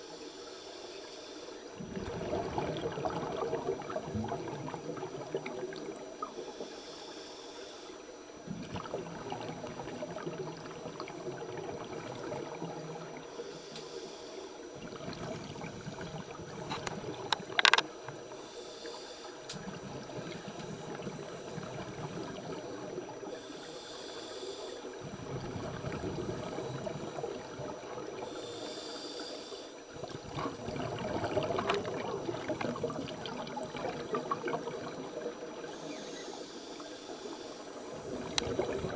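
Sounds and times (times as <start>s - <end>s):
exhaled bubbles rushing underwater: 1.7s - 6.6s, 8.2s - 13.4s, 14.6s - 18.4s, 19.6s - 23.4s, 24.8s - 28.7s, 29.8s - 38.9s
dull underwater rumbling: 1.8s - 6.2s, 25.0s - 28.2s, 29.9s - 35.8s, 37.8s - 38.9s.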